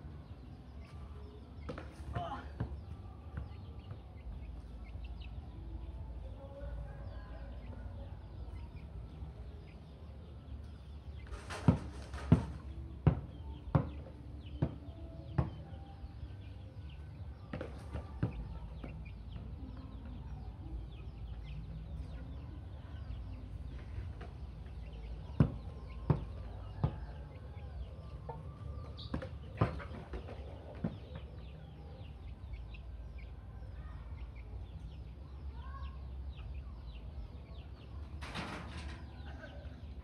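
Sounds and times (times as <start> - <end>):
small birds chirping: 0.0 - 40.0
chickens clucking: 7.5 - 15.7, 17.5 - 35.2.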